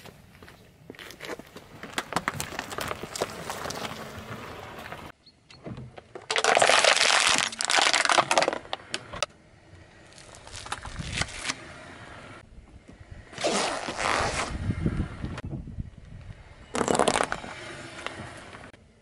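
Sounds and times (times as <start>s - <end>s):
tyre crunching on asphalt: 0.0s - 5.1s, 13.4s - 14.6s
plastic bottle crunching under tyre: 1.0s - 5.1s, 6.1s - 9.2s, 10.1s - 11.6s, 13.4s - 14.6s, 16.7s - 18.2s.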